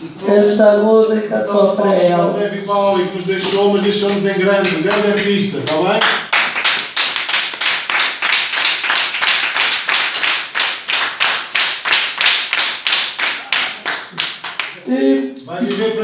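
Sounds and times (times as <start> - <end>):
group clapping rhythmically: 3.5 - 14.9.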